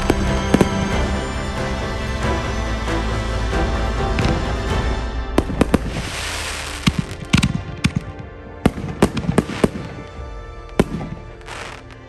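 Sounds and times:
fireworks crackling hiss: 5.4s - 8.1s, 8.7s - 12.0s
fireworks bangs: 5.4s - 12.0s.

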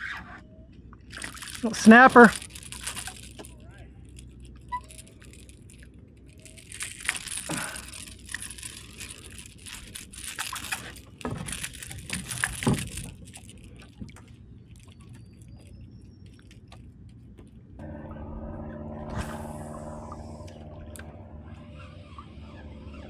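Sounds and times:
rustling: 1.0s - 17.6s.

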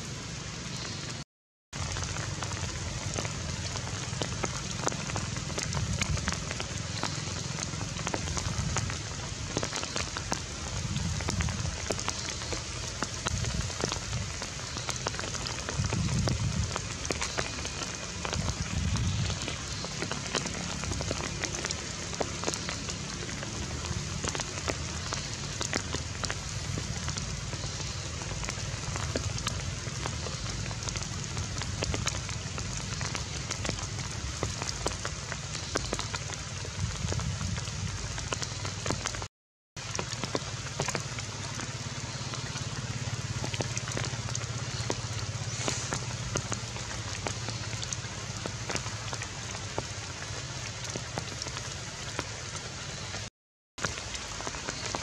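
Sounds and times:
steady rain with dripping ticks: 0.0s - 55.0s.

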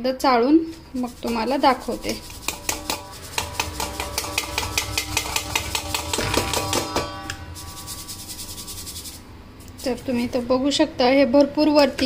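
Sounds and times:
metal sieve rattling in bowl: 0.9s - 10.3s.

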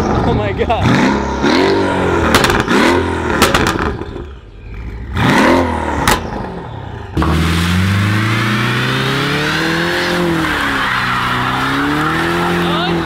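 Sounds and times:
car accelerating: 0.0s - 13.0s
car engine revving: 0.0s - 13.0s
engine pops: 2.2s - 4.2s.

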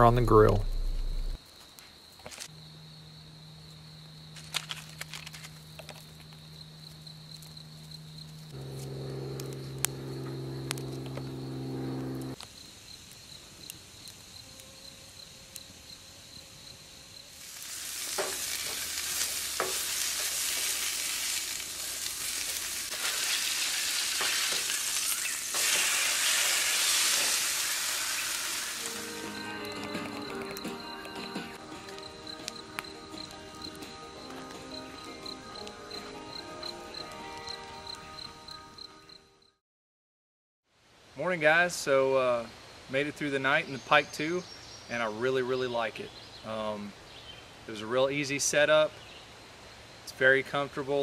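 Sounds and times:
low steady hum: 0.0s - 1.4s, 8.6s - 12.4s
high insect trill: 0.4s - 39.6s
campfire crackles: 3.7s - 15.9s, 16.6s - 38.0s
food sizzling in a frying pan: 17.3s - 29.6s.

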